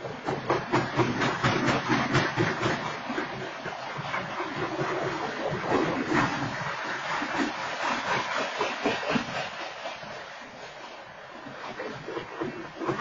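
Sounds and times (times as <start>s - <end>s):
train wheels rumbling on rail: 0.0s - 13.0s
train cars knocking and clattering: 0.1s - 3.1s.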